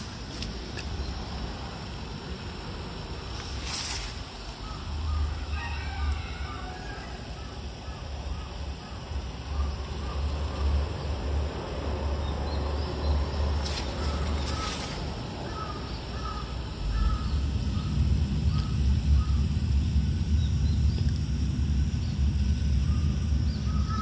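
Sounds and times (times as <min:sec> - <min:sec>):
brief rustle: 0:03.4 - 0:04.2, 0:13.6 - 0:15.1
birds calling: 0:04.0 - 0:21.3, 0:21.9 - 0:24.0
low microphone rumble: 0:08.1 - 0:24.0.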